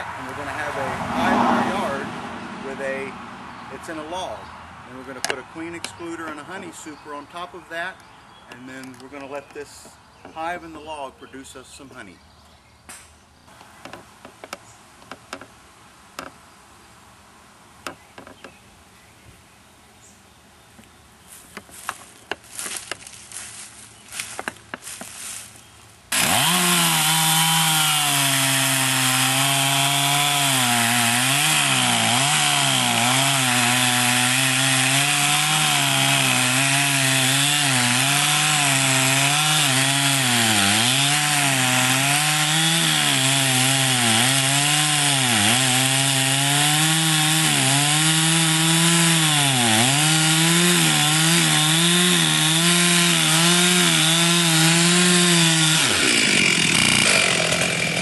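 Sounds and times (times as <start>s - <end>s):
chainsaw cutting log: 0.0s - 3.1s, 26.1s - 58.0s.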